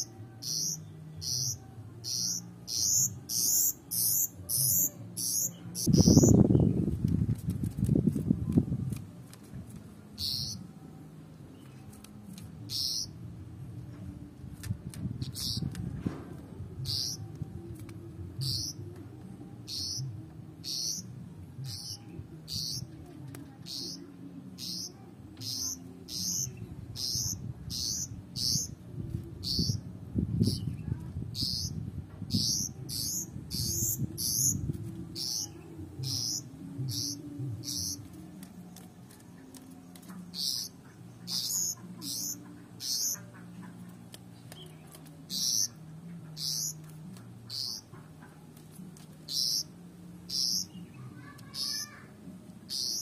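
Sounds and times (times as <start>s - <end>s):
bird chirping: 0.0s - 6.8s, 10.2s - 10.6s, 12.7s - 13.1s, 16.8s - 17.2s, 18.4s - 18.8s, 19.7s - 22.9s, 23.6s - 28.8s, 31.4s - 34.6s, 35.2s - 38.1s, 39.4s - 48.4s, 49.3s - 52.0s, 52.7s - 53.0s.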